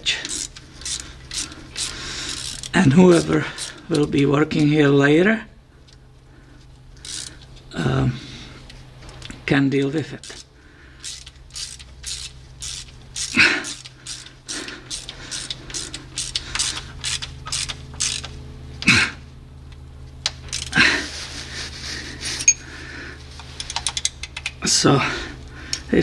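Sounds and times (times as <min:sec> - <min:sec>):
ratchet wrench clicking: 0:00.1 - 0:04.2, 0:07.0 - 0:07.5, 0:10.2 - 0:18.4, 0:20.2 - 0:20.8, 0:23.6 - 0:24.6.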